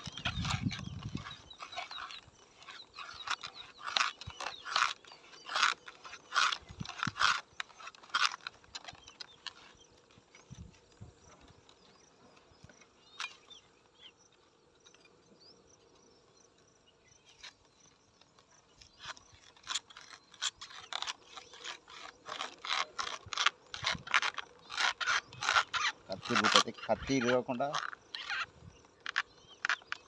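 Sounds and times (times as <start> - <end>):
knife scraping palm fruit bunch: 0.0 - 10.9, 17.3 - 30.0.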